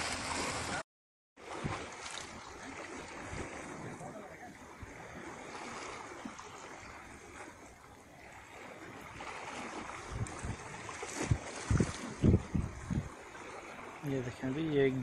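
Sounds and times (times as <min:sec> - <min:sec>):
river water flowing: 0:00.0 - 0:00.8, 0:01.4 - 0:15.0
wind: 0:00.0 - 0:00.8, 0:01.4 - 0:15.0.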